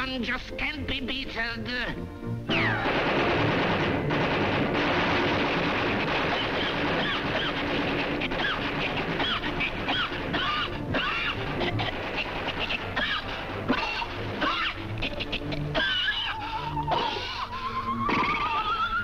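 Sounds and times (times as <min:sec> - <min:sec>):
cartoon machine gun firing: 0:02.5 - 0:10.2
whistling glides: 0:17.5 - 0:19.0.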